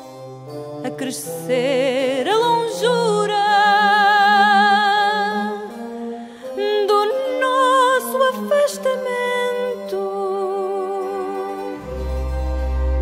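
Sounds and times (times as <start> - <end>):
low sustained accompaniment: 11.5 - 13.0.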